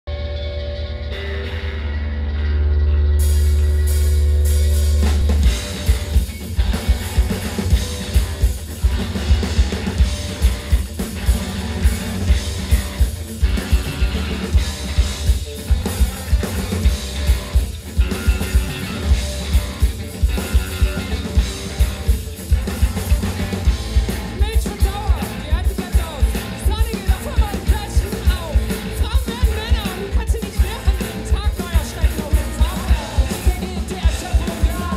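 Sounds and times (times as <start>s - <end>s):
bass guitar: 0.0s - 34.9s
electric guitar: 0.0s - 34.9s
drum kit heavy beat: 3.2s - 34.9s.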